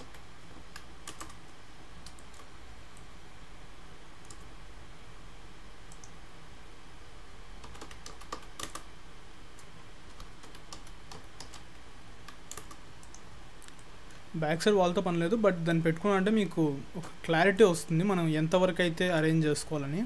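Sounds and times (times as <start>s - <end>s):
steady low hum: 0.0s - 20.0s
mouse clicks: 5.9s - 6.2s, 12.2s - 13.9s.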